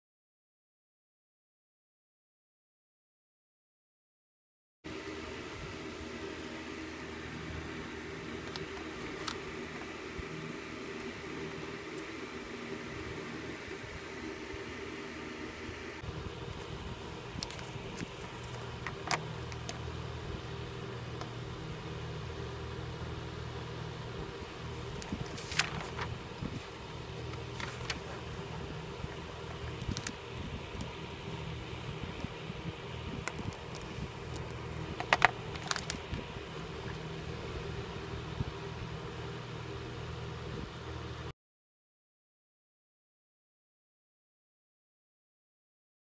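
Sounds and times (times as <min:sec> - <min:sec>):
low room hum: 0:04.9 - 0:41.3
papers and highlighters clicking: 0:08.3 - 0:10.0, 0:17.4 - 0:19.8, 0:24.9 - 0:26.1, 0:27.2 - 0:31.0, 0:33.2 - 0:37.1
objects clicking and crinkling: 0:33.2 - 0:36.3.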